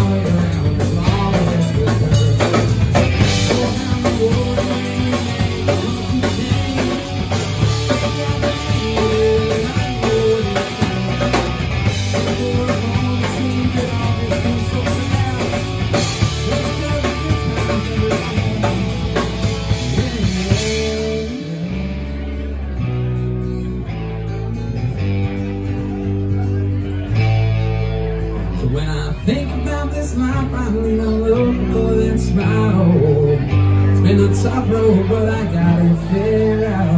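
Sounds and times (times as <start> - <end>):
drum kit: 0.0 - 22.2
guitars ringing: 0.0 - 36.9
live rock band playing: 0.0 - 36.9.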